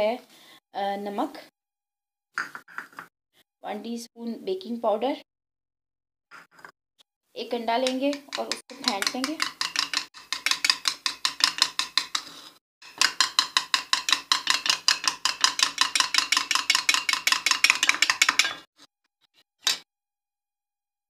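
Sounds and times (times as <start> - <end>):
utensil clicking against bowl: 7.8 - 12.2, 12.9 - 18.6.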